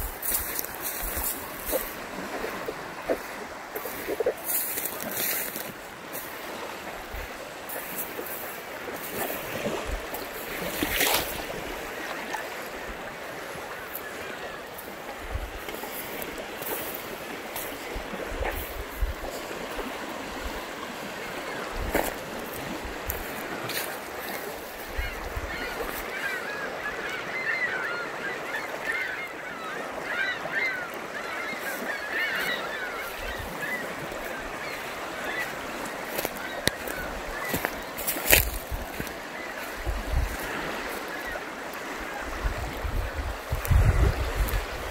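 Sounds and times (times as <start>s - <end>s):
wind on microphone: 0.0s - 5.1s, 17.9s - 20.7s, 39.8s - 40.7s, 42.2s - 44.9s
river water rushing: 0.0s - 44.9s.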